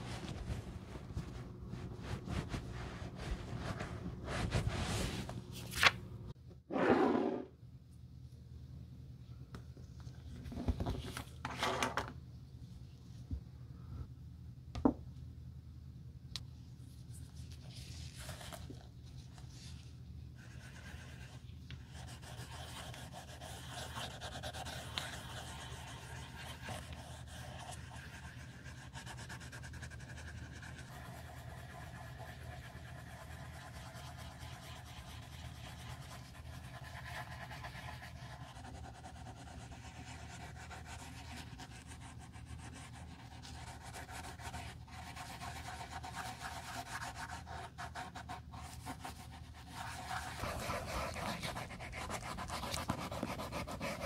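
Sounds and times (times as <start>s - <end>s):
steady low hum: 0.0s - 6.7s.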